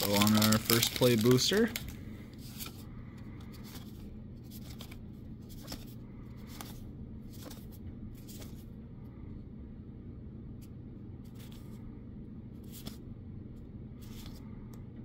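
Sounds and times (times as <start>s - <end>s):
cards being flipped: 0.0s - 2.8s, 3.4s - 8.7s, 11.2s - 11.8s, 12.6s - 13.0s, 14.0s - 14.5s
steady low hum: 0.0s - 15.0s.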